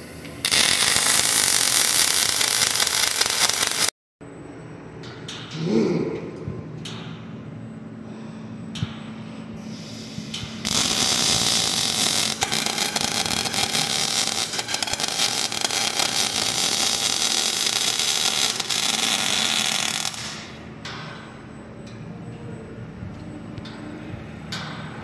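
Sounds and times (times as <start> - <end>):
welding arc crackling and sizzling: 0.0 - 3.9, 10.6 - 20.6
low machine hum: 4.2 - 25.0.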